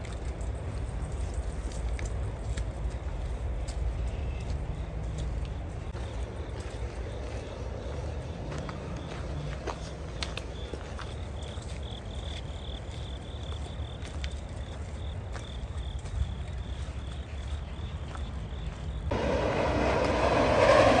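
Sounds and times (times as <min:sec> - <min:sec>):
insects chirring: 0:04.3 - 0:19.2
low rumble: 0:19.1 - 0:21.0.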